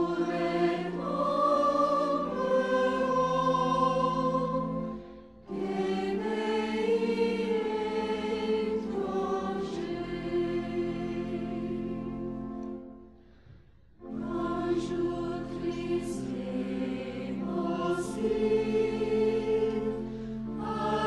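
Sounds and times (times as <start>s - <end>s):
bagpipe drones: 0.0s - 12.7s.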